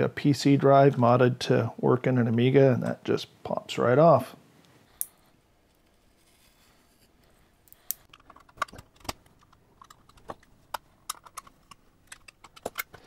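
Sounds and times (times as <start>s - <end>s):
plastic and metal clicks and snaps: 7.7s - 13.0s.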